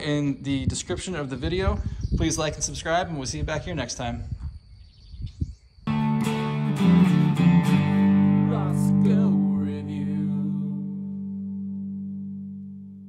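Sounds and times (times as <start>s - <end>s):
strummed guitar chords: 5.9s - 13.0s.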